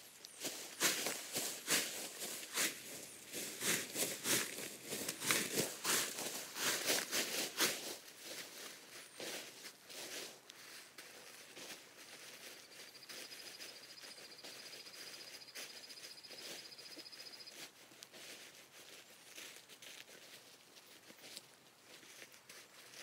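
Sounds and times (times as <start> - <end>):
tent fabric crinkling and rustling: 0.0 - 23.0
songbird trill: 12.4 - 17.7.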